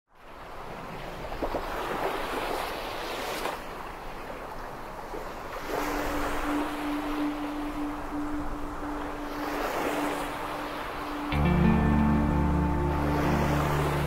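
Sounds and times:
wind: 0.1 - 14.0
sea surf washing ashore: 0.2 - 14.0
steady low music note: 6.2 - 14.0.

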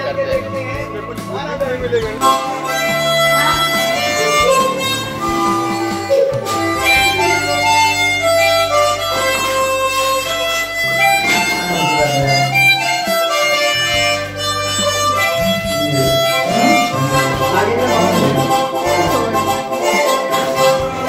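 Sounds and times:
melody of held notes: 1.8 - 21.0
sustained low bass note: 15.3 - 19.6.

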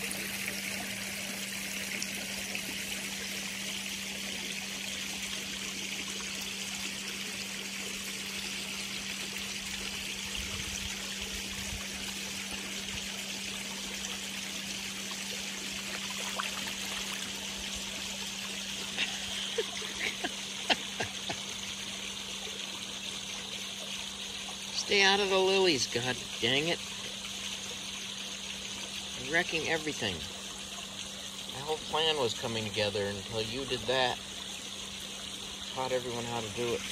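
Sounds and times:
waterfall trickling into pond: 0.0 - 36.9
light splashes: 11.3 - 20.2.

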